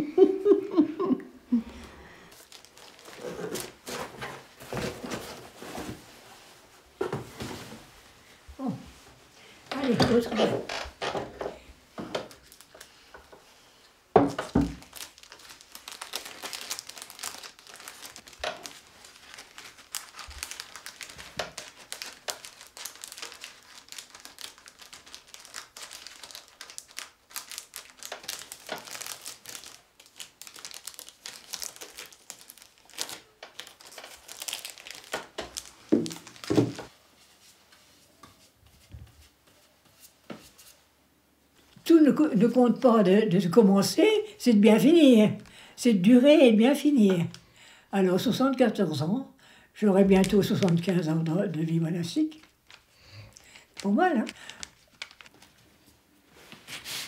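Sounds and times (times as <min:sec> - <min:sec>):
material crinkling and crackling: 0:02.3 - 0:08.0, 0:09.7 - 0:13.4, 0:14.2 - 0:40.8, 0:50.0 - 0:56.9.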